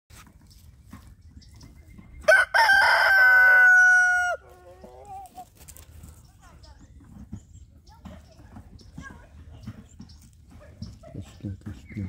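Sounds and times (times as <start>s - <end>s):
rooster crowing: 2.3s - 4.5s.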